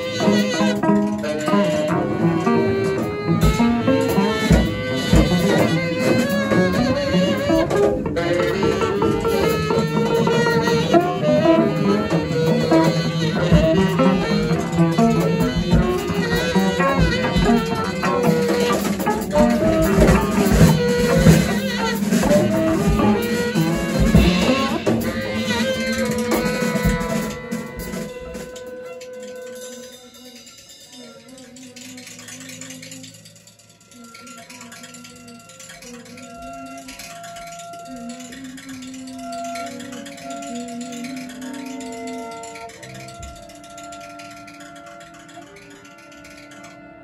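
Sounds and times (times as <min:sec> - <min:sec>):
double bass: 0:00.0 - 0:28.0
drum strikes: 0:00.0 - 0:30.9
cello: 0:00.0 - 0:47.0
tenor saxophone: 0:00.0 - 0:47.0.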